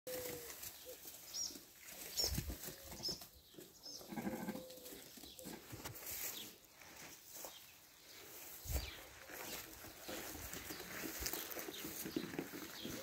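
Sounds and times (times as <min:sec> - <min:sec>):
sheep bleating: 0:04.0 - 0:04.7
rustling in tall grass: 0:05.8 - 0:13.0.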